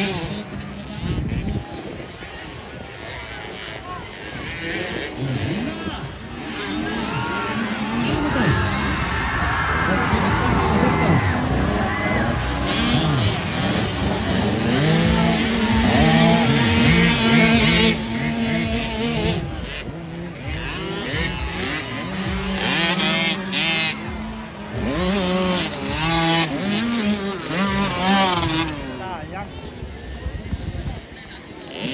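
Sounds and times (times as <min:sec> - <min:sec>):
motocross bike engines revving: 0:00.0 - 0:31.9.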